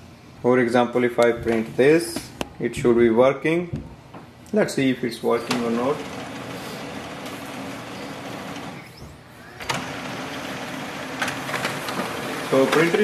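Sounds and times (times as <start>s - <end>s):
laser printer whirring: 5.3s - 13.0s
printer paper feed clicks: 5.4s - 8.9s, 9.6s - 13.0s.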